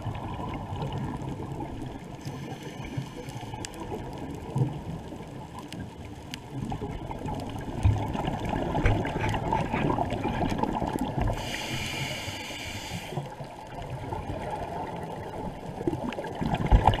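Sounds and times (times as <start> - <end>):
underwater rumble: 0.0 - 17.0
crackling ticks: 0.8 - 13.9.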